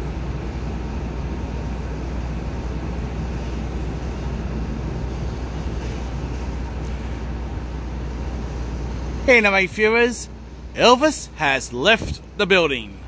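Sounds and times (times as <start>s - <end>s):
diesel train engine: 0.0s - 13.0s.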